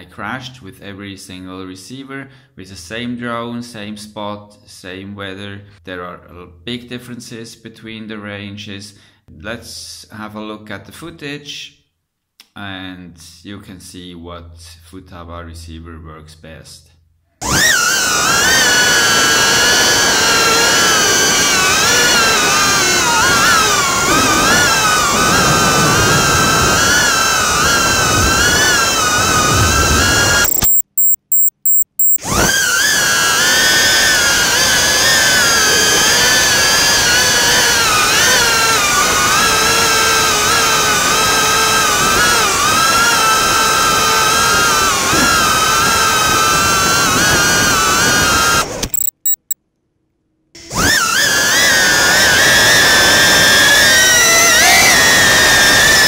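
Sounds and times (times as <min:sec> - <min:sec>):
drone motors whining: 0:17.4 - 0:49.6.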